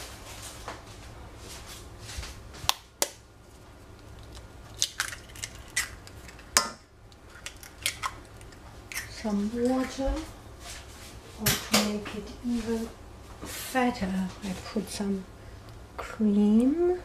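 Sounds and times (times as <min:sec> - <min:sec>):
eggs cracking on metal saucepan: 0:04.0 - 0:09.2.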